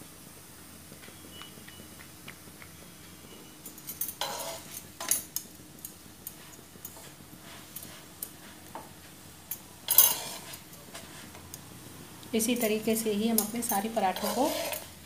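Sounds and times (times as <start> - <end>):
knife scraping frying pan: 4.2 - 4.8, 9.9 - 11.3, 13.4 - 15.0.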